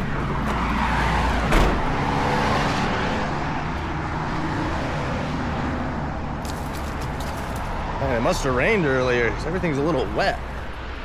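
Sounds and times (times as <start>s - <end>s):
highway traffic: 0.0s - 11.0s
thump: 1.5s - 1.9s.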